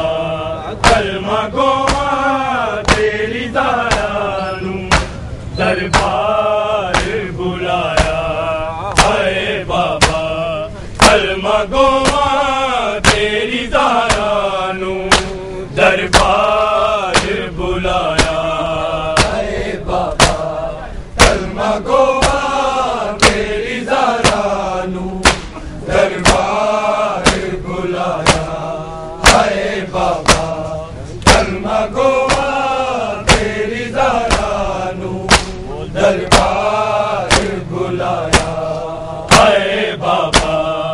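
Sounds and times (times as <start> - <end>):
men chanting a mournful lament: 0.0 - 40.9
hands slapping chests in unison: 0.8 - 5.2, 5.9 - 20.6, 21.2 - 40.8.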